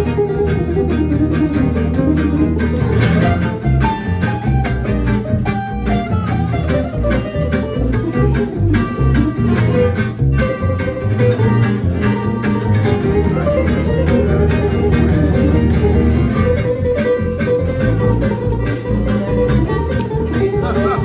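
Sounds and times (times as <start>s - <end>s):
acoustic guitars strumming: 0.0s - 21.0s
fiddle bowing melody: 0.0s - 21.0s
upright bass: 0.0s - 21.0s.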